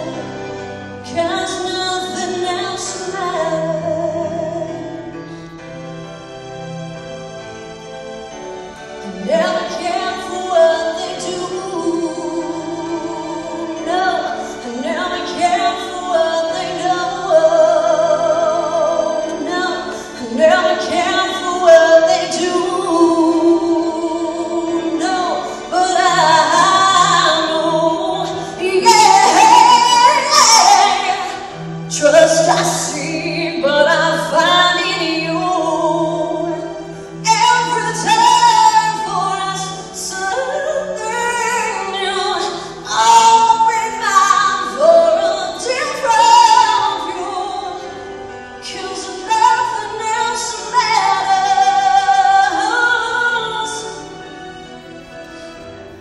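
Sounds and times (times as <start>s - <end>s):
instrumental accompaniment: 0.0s - 56.0s
woman singing into microphone: 9.1s - 48.0s, 48.6s - 54.0s.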